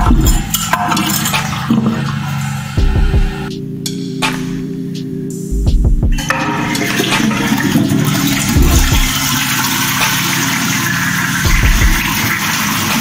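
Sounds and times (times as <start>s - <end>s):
toilet water rushing: 0.0s - 3.5s, 6.2s - 13.0s.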